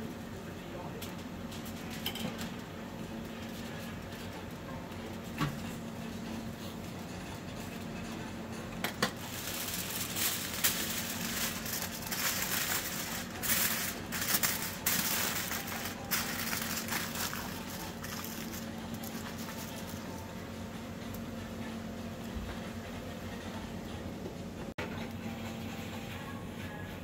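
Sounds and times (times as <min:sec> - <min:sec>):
aluminium foil crinkling: 0:08.9 - 0:21.2.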